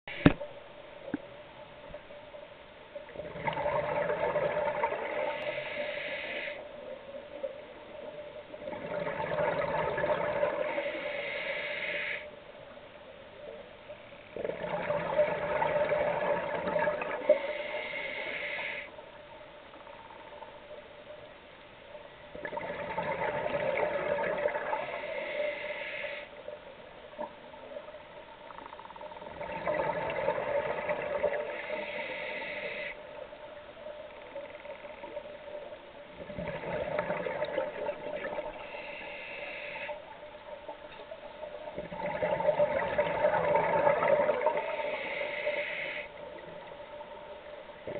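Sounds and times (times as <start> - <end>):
regulator hiss: 5.2 - 7.4, 10.7 - 12.4, 17.2 - 19.0, 24.7 - 26.6, 31.4 - 33.3, 38.4 - 40.6, 44.6 - 46.6.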